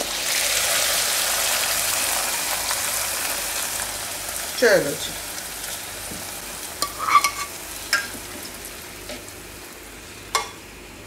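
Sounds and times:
hot oil sizzling in water: 0.0 - 10.7.

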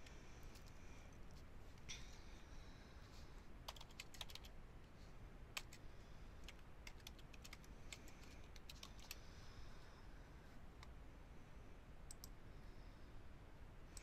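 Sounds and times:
faint typing on computer keyboard: 0.0 - 1.4, 3.6 - 4.6, 5.5 - 9.3, 12.0 - 12.4.

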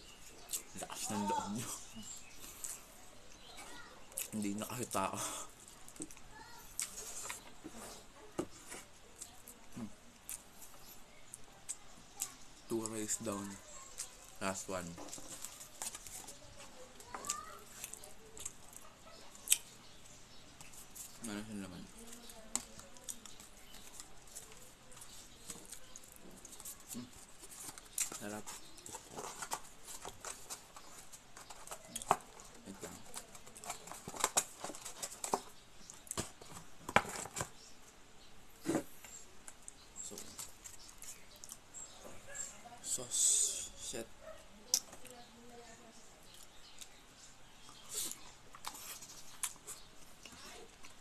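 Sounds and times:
chewing clicks and smacks: 15.1 - 21.2, 22.0 - 36.6, 39.4 - 41.7, 44.7 - 45.1, 46.2 - 47.0, 47.6 - 51.0.

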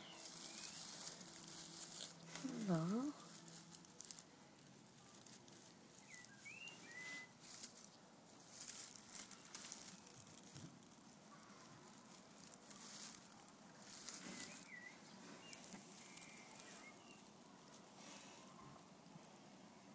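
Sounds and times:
rustling of hay nesting material: 0.0 - 19.9
faint high chirps: 5.0 - 7.7, 13.8 - 17.6.

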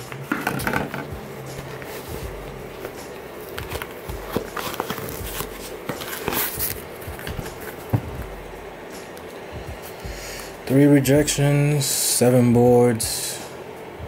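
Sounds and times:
sneaker rustling: 0.0 - 9.1.

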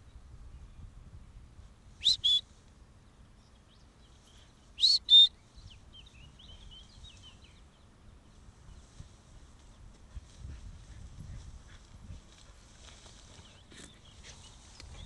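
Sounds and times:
two-note dog whistle: 2.0 - 2.4.

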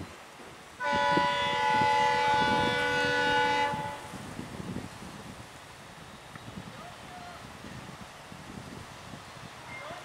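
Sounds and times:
locomotive air horn blast: 0.8 - 4.2.

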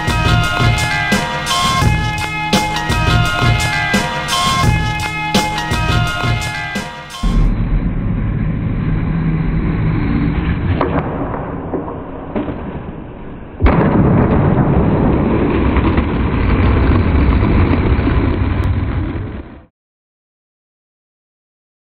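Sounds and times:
skateboard wheels rolling on concrete: 0.0 - 13.6, 14.8 - 19.7
skateboard landing crack: 10.6 - 18.8.

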